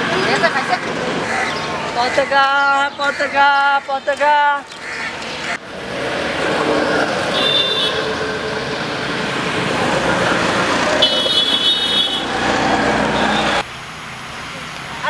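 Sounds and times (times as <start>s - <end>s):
road traffic passing: 0.0s - 15.0s
vehicle horn beeping: 7.3s - 8.2s, 11.0s - 12.3s.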